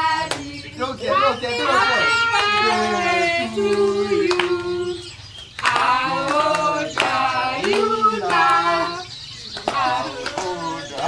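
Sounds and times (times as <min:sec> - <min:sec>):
women and children singing: 0:00.0 - 0:11.0
hand claps: 0:00.1 - 0:00.6, 0:02.3 - 0:11.0.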